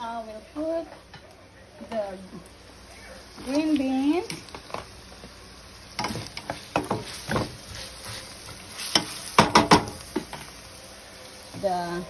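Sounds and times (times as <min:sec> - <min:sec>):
wooden spatula scraping skillet: 0:06.0 - 0:10.5.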